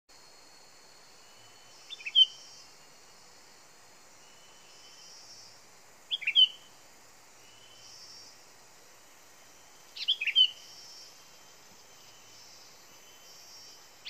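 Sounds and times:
high-pitched background hiss: 0:00.1 - 0:14.0
bird calling: 0:01.8 - 0:02.7, 0:06.1 - 0:06.8, 0:09.9 - 0:11.4.

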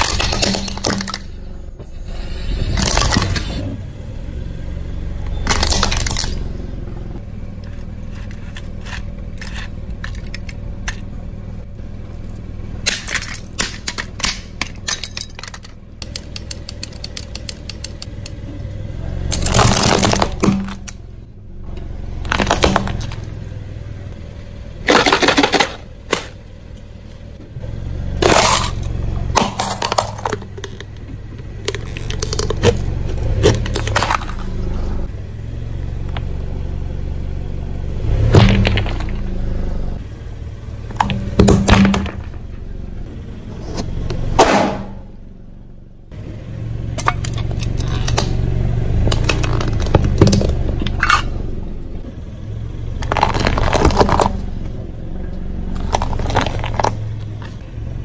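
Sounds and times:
tyre crushing objects: 0:00.0 - 0:01.4, 0:19.3 - 0:21.0, 0:22.2 - 0:23.3, 0:28.2 - 0:34.6, 0:38.1 - 0:39.3, 0:49.0 - 0:51.2, 0:53.0 - 0:54.6, 0:55.7 - 0:57.6
car engine rumbling: 0:00.0 - 0:58.0.

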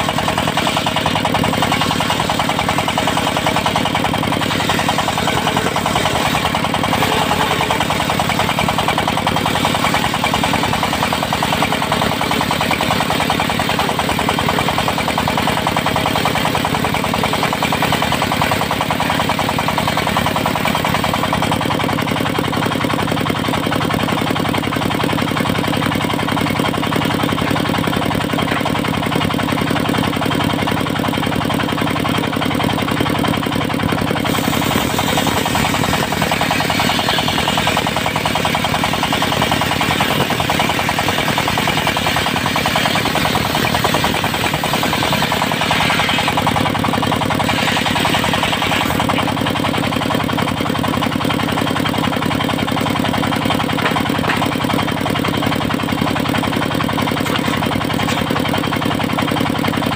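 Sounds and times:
sawmill engine running: 0:00.0 - 0:59.9
saw blade ripping log: 0:00.1 - 0:14.5, 0:34.2 - 0:49.6, 0:57.0 - 0:59.0.

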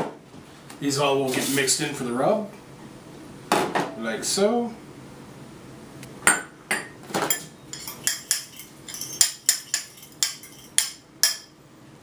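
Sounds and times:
cutlery clinking in ceramic bowl: 0:07.2 - 0:11.5.

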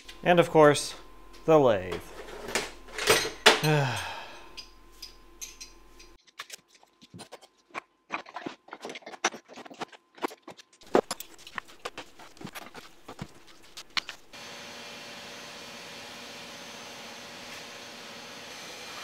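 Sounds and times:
metal tools clicking and clinking: 0:04.5 - 0:06.6.

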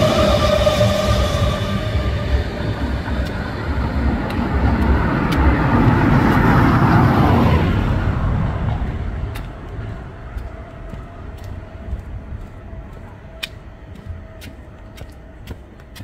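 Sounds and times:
vehicle passing by: 0:00.0 - 0:10.2.

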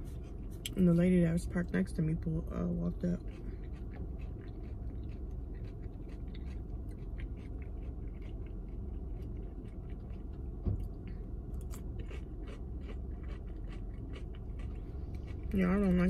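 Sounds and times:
steady low rumble: 0:00.0 - 0:16.0
person chewing food: 0:03.2 - 0:15.6
low thump: 0:10.6 - 0:10.9.

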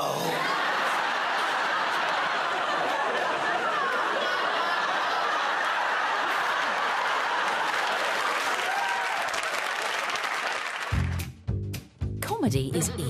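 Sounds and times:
audience laughing: 0:00.0 - 0:08.9
audience applauding: 0:00.4 - 0:11.3.

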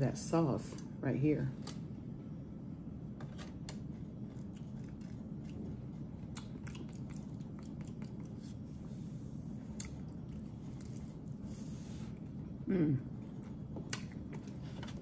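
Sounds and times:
faint low hum: 0:00.0 - 0:15.0
wet chewing and smacking: 0:03.7 - 0:11.5, 0:12.1 - 0:15.0.

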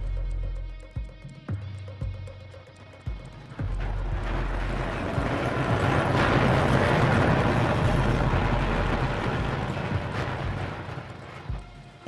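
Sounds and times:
building collapsing roar: 0:03.4 - 0:12.0.

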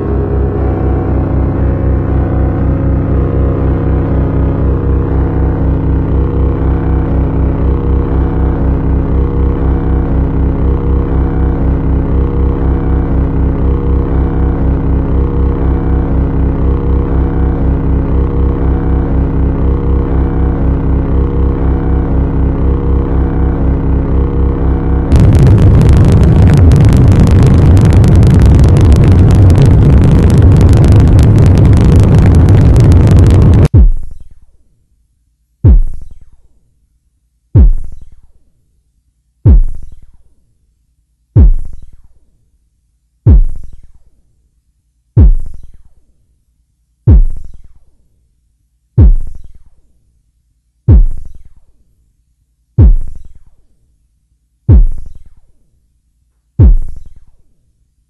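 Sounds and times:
deep electronic bass hits: 0:00.0 - 0:34.2, 0:35.6 - 0:36.2, 0:37.6 - 0:38.1, 0:39.5 - 0:40.0, 0:41.4 - 0:41.9, 0:43.3 - 0:43.8, 0:45.2 - 0:45.8, 0:47.1 - 0:47.6, 0:50.9 - 0:51.4, 0:52.8 - 0:53.3, 0:54.7 - 0:55.2, 0:56.6 - 0:57.2
distorted synthesizer noise: 0:00.0 - 0:34.3.

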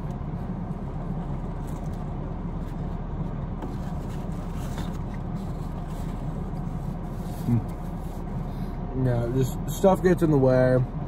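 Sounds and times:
faint rustles and clicks: 0:00.0 - 0:08.8
car idling hum: 0:00.0 - 0:11.0.

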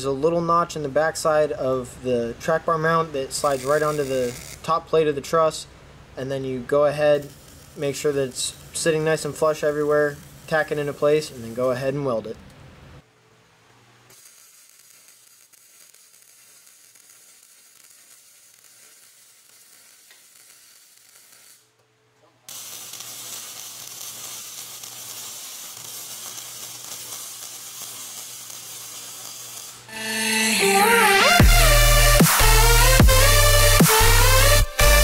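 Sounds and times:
welder arc crackling sizzle: 0:02.4 - 0:05.6, 0:06.5 - 0:12.4, 0:14.0 - 0:21.8, 0:22.4 - 0:35.0
electronic music: 0:29.9 - 0:35.0.

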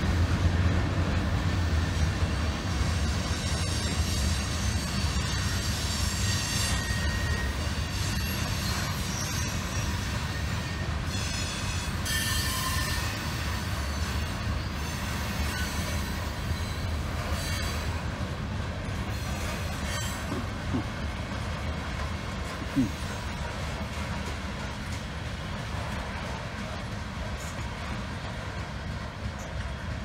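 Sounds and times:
freight train rumbling past: 0:00.0 - 0:30.0
high wheel squeal: 0:02.8 - 0:18.0, 0:19.1 - 0:20.4.

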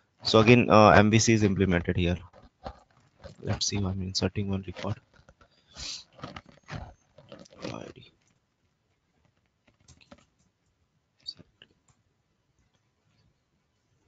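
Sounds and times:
low speech: 0:00.3 - 0:02.2, 0:03.5 - 0:05.0.

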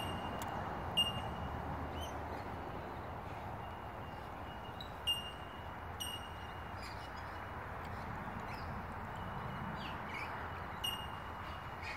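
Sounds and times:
high ringing bird pings: 0:00.0 - 0:02.2, 0:03.6 - 0:07.5, 0:08.5 - 0:11.9.

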